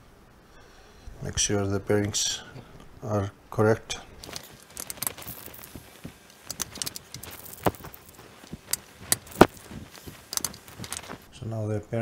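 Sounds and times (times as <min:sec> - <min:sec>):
clicks and taps of parts: 0:04.2 - 0:11.2.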